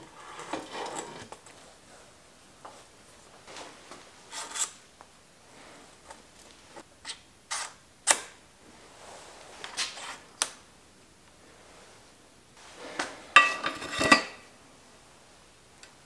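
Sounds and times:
metal and plastic scraping: 0.1s - 1.4s.

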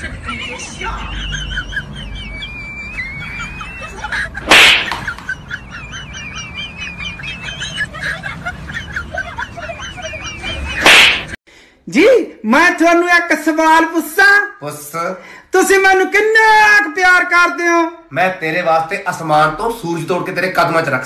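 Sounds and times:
comic whoosh slap effect: 4.4s - 5.1s, 10.8s - 11.4s.

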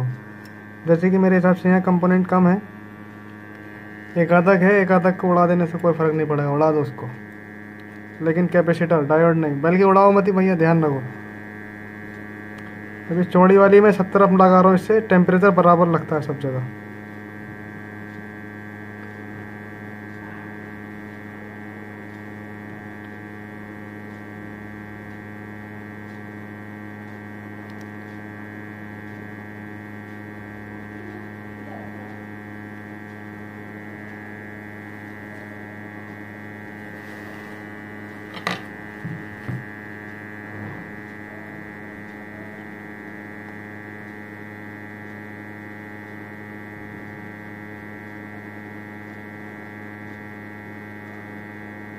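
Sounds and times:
hot air station blowing: 36.6s - 39.7s.

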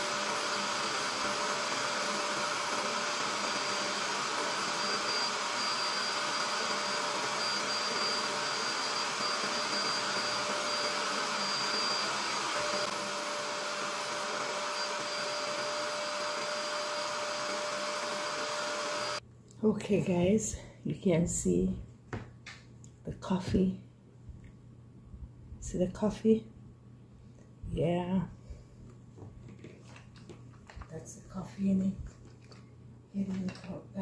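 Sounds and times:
spot cleaner motor whining: 0.0s - 19.2s.

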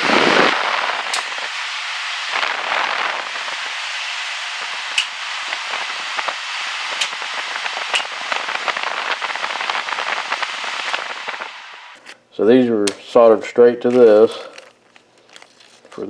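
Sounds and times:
heater blower rushing air: 0.0s - 12.2s
fine crackle: 13.8s - 16.0s.

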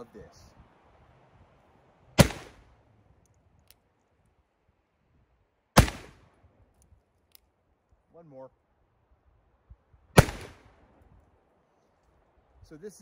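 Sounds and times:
revolver shots: 2.2s - 2.6s, 5.8s - 6.2s, 10.2s - 10.6s.

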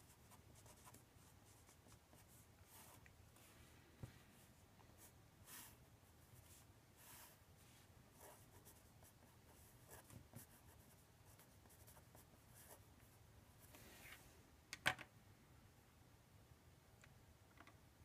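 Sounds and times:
marker scratching on paper: 8.2s - 12.8s.

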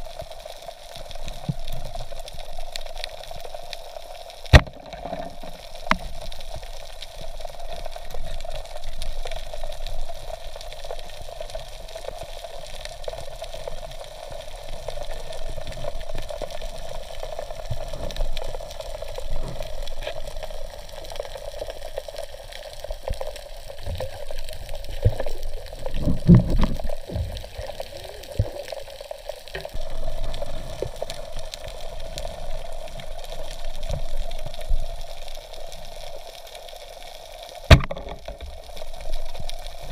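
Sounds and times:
underwater sloshing and bubbling: 0.0s - 39.9s
low underwater thumps: 37.7s - 38.4s.

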